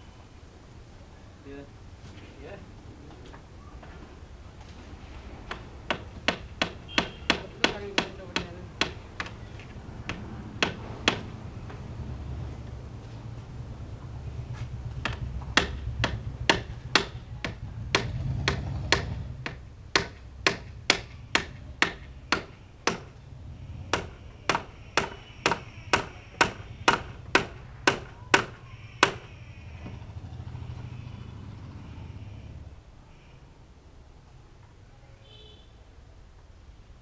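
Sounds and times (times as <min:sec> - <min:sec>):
hammer driving nails into wood: 0:05.5 - 0:09.4, 0:10.1 - 0:11.3, 0:15.0 - 0:23.2, 0:23.9 - 0:29.3.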